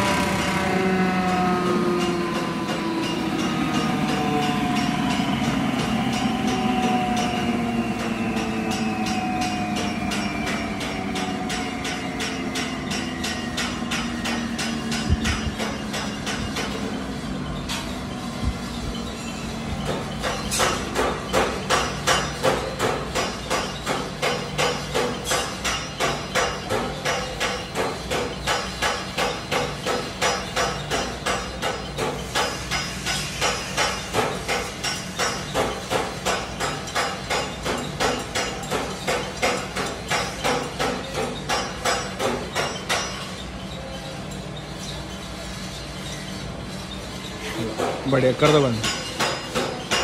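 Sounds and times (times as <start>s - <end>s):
flour mill humming: 0.0s - 9.4s.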